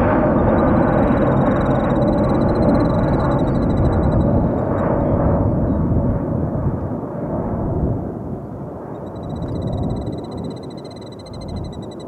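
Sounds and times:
jet engine rumble: 0:00.0 - 0:12.0
high rapidly pulsing trill: 0:00.4 - 0:04.9, 0:09.0 - 0:12.0.

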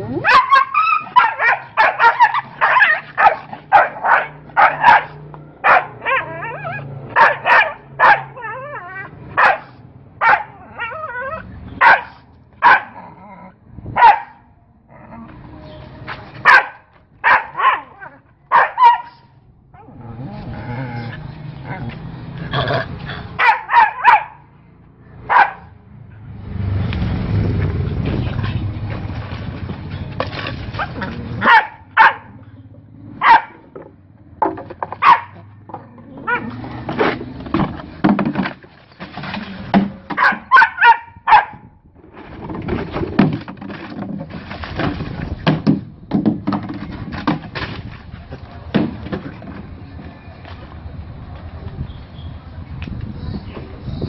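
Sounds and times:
dog barking: 0:00.2 - 0:08.4, 0:09.4 - 0:10.9, 0:11.8 - 0:13.0, 0:14.0 - 0:14.4, 0:16.4 - 0:19.3, 0:23.4 - 0:24.4, 0:25.2 - 0:25.8, 0:31.4 - 0:32.4, 0:33.2 - 0:33.6, 0:35.0 - 0:35.5, 0:40.2 - 0:41.6.

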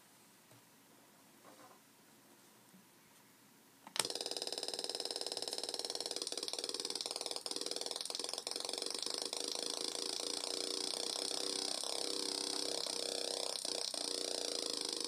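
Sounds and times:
harsh buzzing synth tone: 0:04.0 - 0:15.0.

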